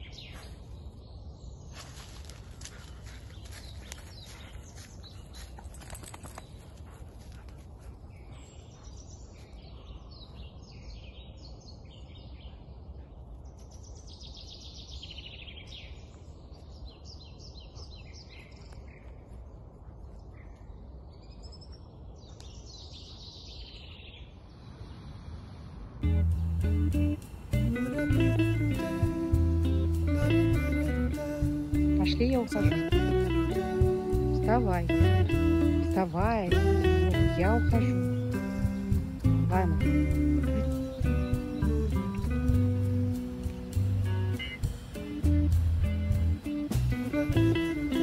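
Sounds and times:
songbirds singing: 0:00.0 - 0:48.0
steady low rumble: 0:24.6 - 0:47.6.

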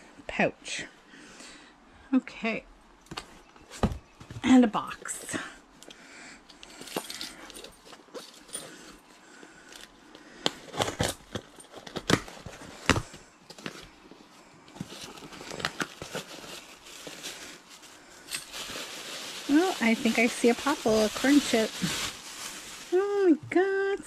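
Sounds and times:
cardboard box crinkling: 0:10.5 - 0:14.1, 0:14.7 - 0:23.2.

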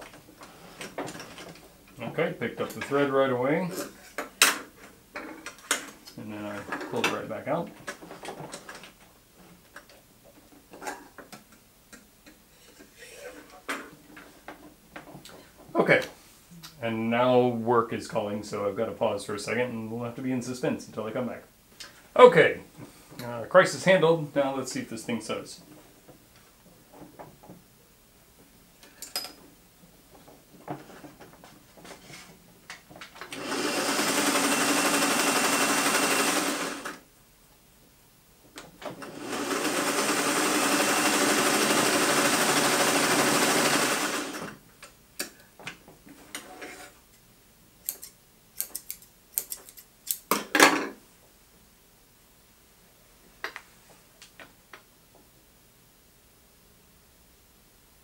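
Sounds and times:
sewing machine running: 0:33.3 - 0:37.0, 0:39.0 - 0:44.5.

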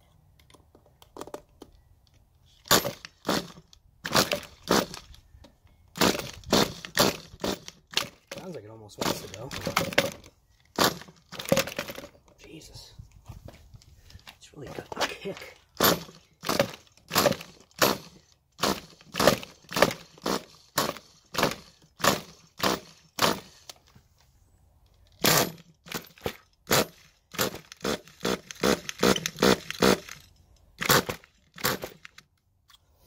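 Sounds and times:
small engine turning over: 0:02.6 - 0:05.2, 0:05.9 - 0:08.4, 0:09.0 - 0:12.1, 0:15.8 - 0:23.8, 0:25.1 - 0:32.3.

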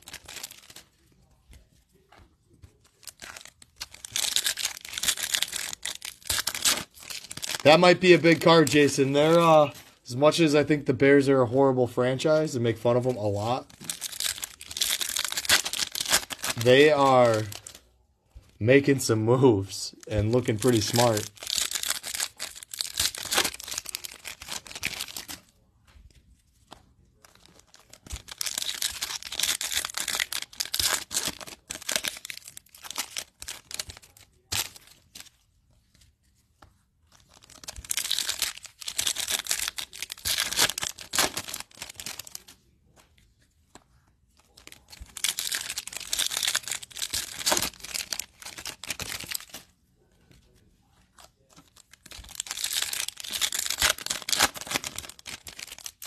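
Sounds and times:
foil wrappers tearing and crinkling: 0:00.0 - 0:01.0, 0:02.8 - 0:10.4, 0:12.8 - 0:17.8, 0:20.2 - 0:25.5, 0:27.2 - 0:35.3, 0:37.2 - 0:42.6, 0:44.4 - 0:49.7, 0:51.2 - 0:56.0.

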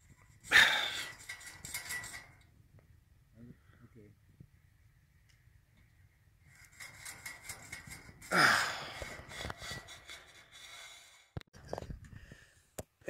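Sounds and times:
rustling and clicking of conduit: 0:00.0 - 0:02.9, 0:05.2 - 0:12.2
man grunting with effort: 0:08.3 - 0:09.0.

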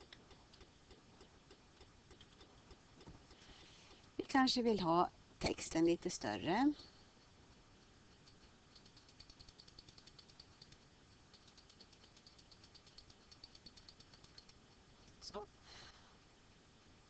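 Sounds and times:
computer mouse clicking: 0:00.0 - 0:04.1, 0:08.1 - 0:15.2.

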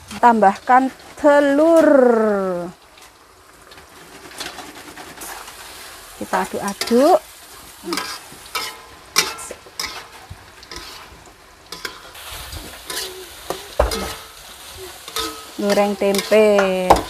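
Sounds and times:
food sizzling in hot oil: 0:00.0 - 0:17.0
spatula scraping a pan: 0:03.9 - 0:17.0.

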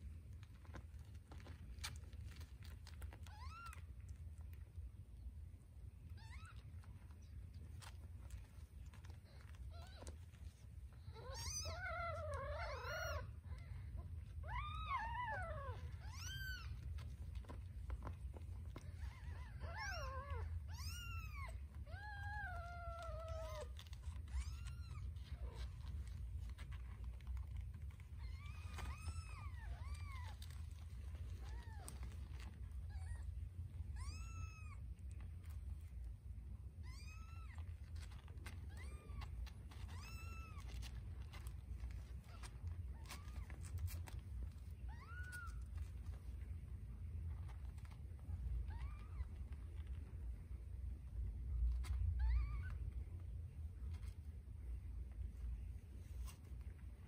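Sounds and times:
newborn kittens mewing: 0:06.0 - 0:35.3, 0:36.7 - 0:46.2.

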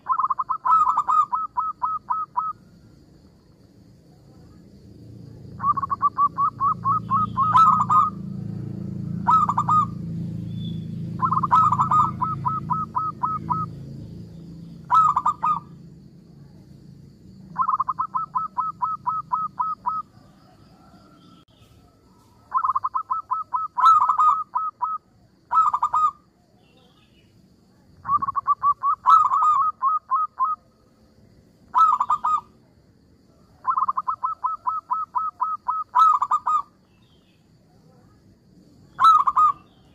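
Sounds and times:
dove cooing: 0:00.0 - 0:02.7, 0:05.5 - 0:10.2, 0:11.1 - 0:13.8, 0:14.8 - 0:15.8, 0:17.5 - 0:21.2, 0:21.8 - 0:26.3, 0:28.0 - 0:30.6, 0:31.7 - 0:32.5, 0:33.6 - 0:36.7, 0:39.0 - 0:39.7.

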